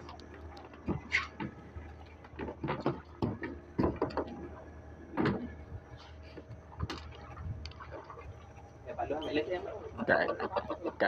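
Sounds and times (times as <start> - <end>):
knocks and thuds on boat deck: 0.8 - 1.6, 2.3 - 4.4, 5.1 - 5.6.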